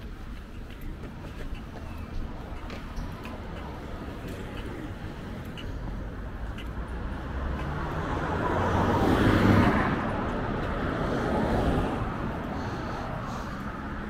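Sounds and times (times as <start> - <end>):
road traffic: 0.0 - 14.0
vehicle passing close by: 6.2 - 14.0.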